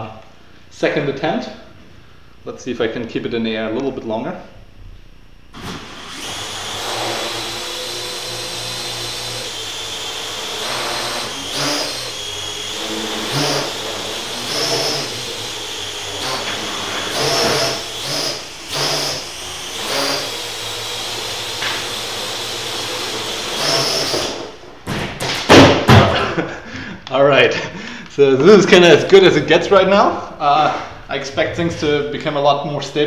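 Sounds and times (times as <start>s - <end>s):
quadcopter rotors whirring: 5.7s - 24.4s.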